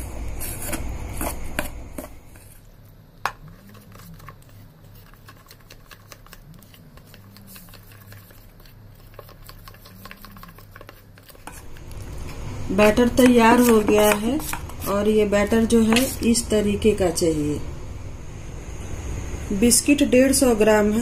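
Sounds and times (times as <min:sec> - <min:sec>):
spoon stirring batter in metal bowl: 0:00.4 - 0:16.4.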